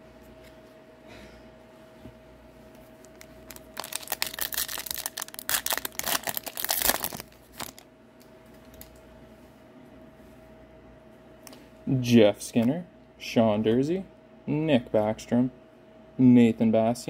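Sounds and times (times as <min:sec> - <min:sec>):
foil wrapper tearing and crinkling: 0:03.0 - 0:07.8.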